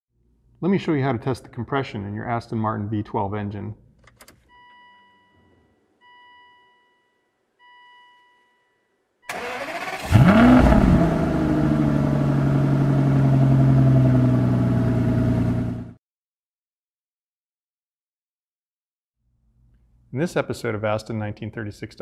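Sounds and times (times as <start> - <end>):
car engine revving and idling: 9.4 - 16.0.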